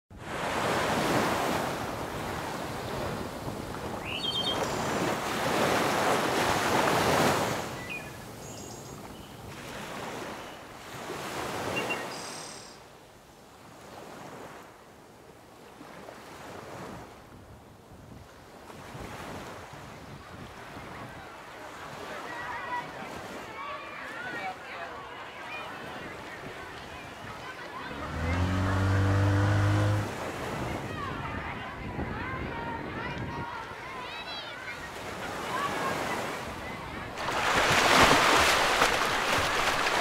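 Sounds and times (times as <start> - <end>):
waves breaking on shore: 0.1 - 40.0
wind: 0.1 - 40.0
bird chirps: 4.0 - 5.0, 7.8 - 9.4, 11.8 - 12.8.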